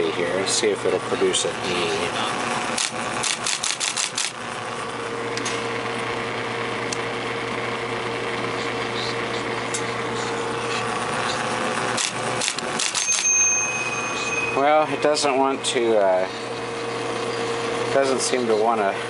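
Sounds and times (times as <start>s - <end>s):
typewriter motor hum: 0.8s - 6.1s, 8.3s - 13.9s
typewriter clicks: 2.8s - 4.3s, 12.0s - 13.2s
typewriter keys striking: 2.8s - 4.3s
thin high tone: 12.9s - 17.5s.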